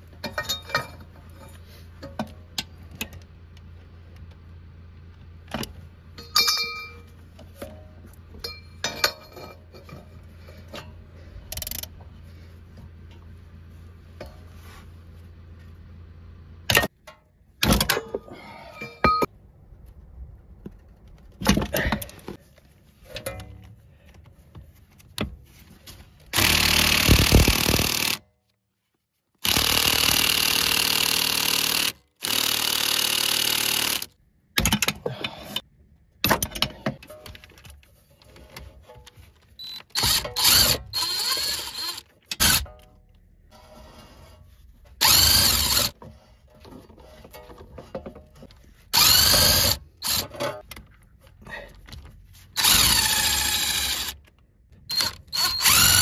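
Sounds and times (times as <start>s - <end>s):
metal tools clinking: 0.2s - 1.6s, 6.2s - 7.1s, 8.4s - 11.0s.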